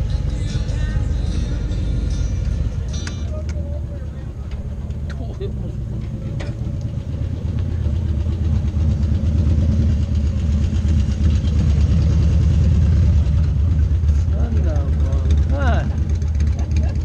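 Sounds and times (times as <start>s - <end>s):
motorcycle engines running: 0.0s - 17.0s.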